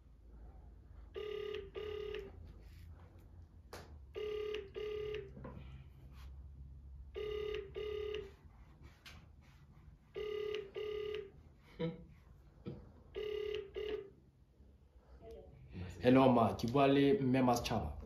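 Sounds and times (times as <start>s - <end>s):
phone ringback tone: 1.1s - 2.4s, 4.2s - 5.5s, 7.1s - 8.4s, 10.2s - 11.4s, 13.2s - 14.2s.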